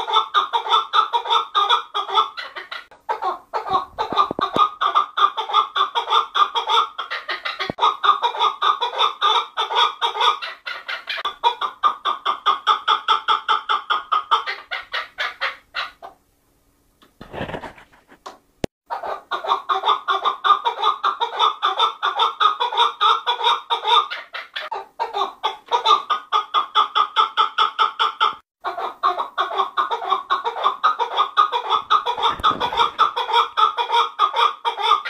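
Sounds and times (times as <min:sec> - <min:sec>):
partridge clucking calls: 0:00.0 - 0:16.1, 0:29.4 - 0:35.0.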